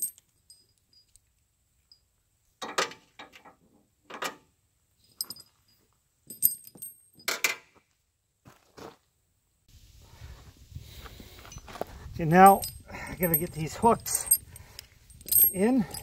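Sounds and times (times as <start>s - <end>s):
tire chains clinking and rattling: 0.0s - 1.2s, 5.0s - 7.4s, 11.4s - 16.0s.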